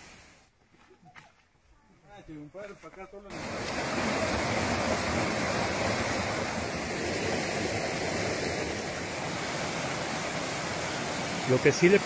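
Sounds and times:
creek rushing over rocks: 3.3s - 12.0s.

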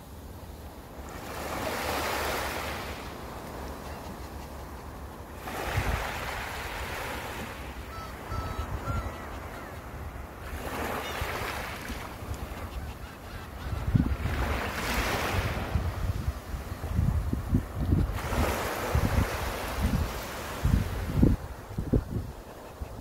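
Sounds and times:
sea waves breaking on beach: 0.9s - 3.9s, 4.8s - 12.7s, 14.1s - 22.0s
wind buffeting microphone: 13.6s - 23.0s.

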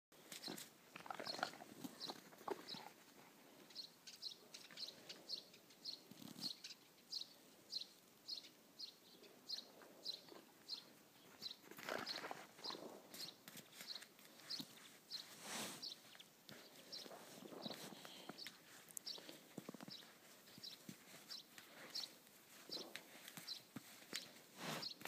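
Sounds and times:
small bird chirping: 0.4s - 2.9s, 3.7s - 25.0s
scuffing in snow: 13.7s - 25.0s.

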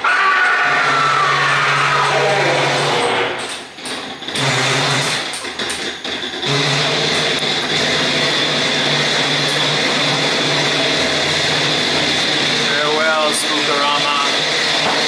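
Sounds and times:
ride car mechanical whirring: 0.2s - 15.0s.

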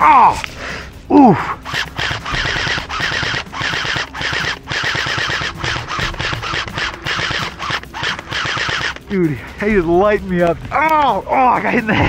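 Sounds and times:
airsoft rifle firing bursts: 1.6s - 9.3s.

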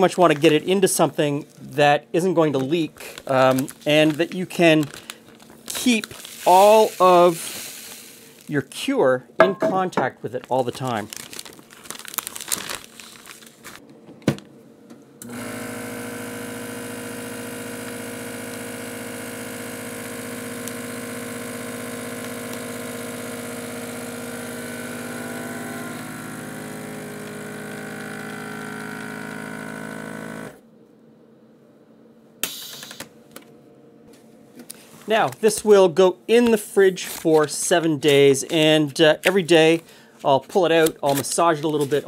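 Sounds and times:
vacuum sealer pump humming: 2.6s - 8.5s, 15.2s - 30.7s.

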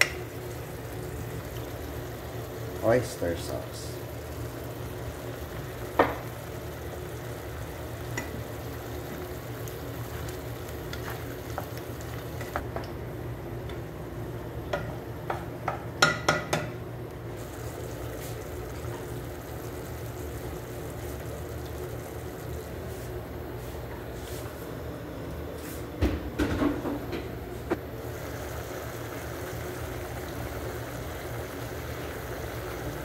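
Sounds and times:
food cooking in sauce in a pan: 0.0s - 12.7s, 17.4s - 23.2s, 27.9s - 33.0s.

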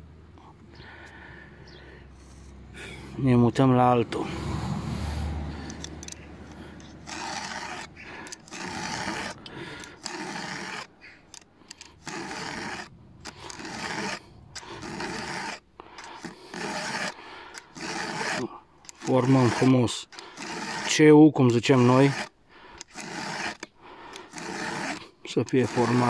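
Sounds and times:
file rasping on saw chain: 5.5s - 26.0s.

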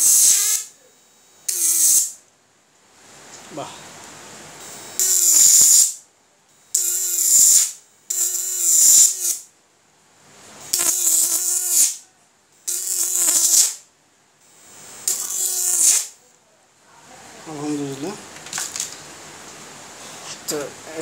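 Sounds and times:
electric arc crackling buzz: 0.0s - 0.8s, 1.4s - 2.2s, 4.4s - 6.1s, 6.7s - 9.5s, 10.6s - 12.0s, 12.6s - 16.2s.

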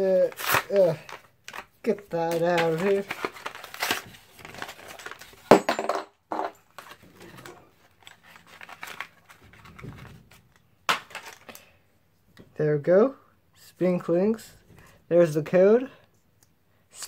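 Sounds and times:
packaging crinkling: 0.2s - 5.4s.

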